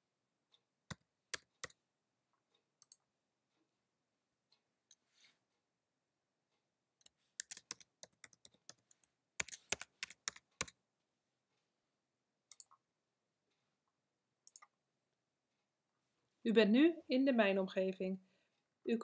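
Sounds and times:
typing on a computer keyboard: 0.9s - 1.8s, 7.0s - 10.8s, 12.5s - 12.8s, 14.4s - 14.8s.

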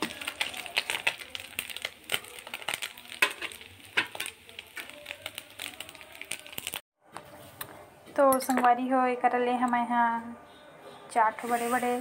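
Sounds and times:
fish sizzling in hot oil: 0.0s - 6.8s, 11.4s - 12.0s.

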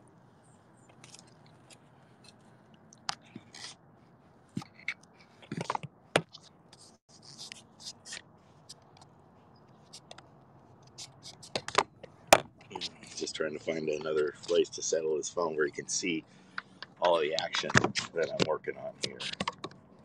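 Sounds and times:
phone handling scrapes and clicks: 0.9s - 3.8s, 4.5s - 9.1s.

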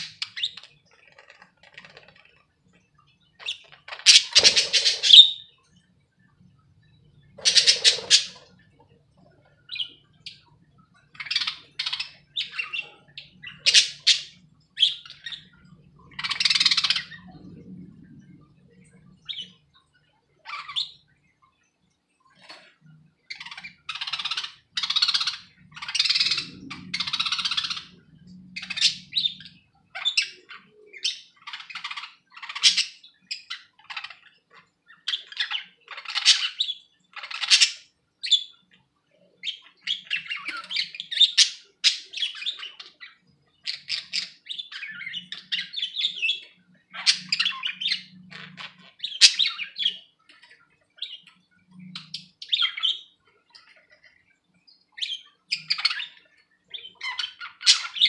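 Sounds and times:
budgerigars chattering: 0.0s - 2.4s, 3.4s - 5.6s, 7.4s - 8.5s, 11.1s - 17.2s, 23.3s - 28.0s, 28.6s - 38.6s, 39.4s - 50.1s, 55.0s - 58.0s.

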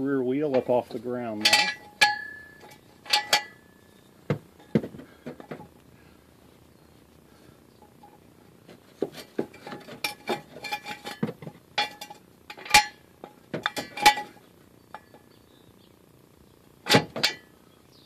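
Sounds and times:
jack stand metal clanks: 0.5s - 5.8s, 9.1s - 15.3s, 16.9s - 17.5s.

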